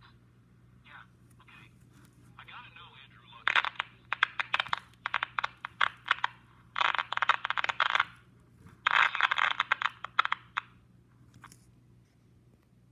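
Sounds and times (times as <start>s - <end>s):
radio static clicks: 3.4s - 10.8s
tinny crackling hiss: 3.4s - 10.9s.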